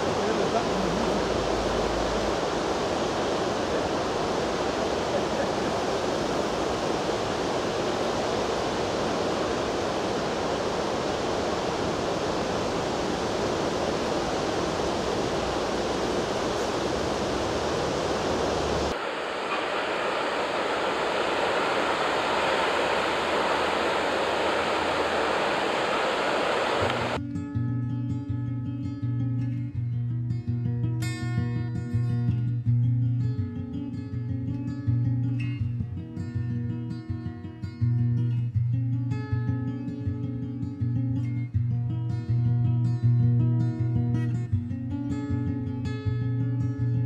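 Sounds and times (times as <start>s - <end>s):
river rushing over stones: 0.0s - 27.2s.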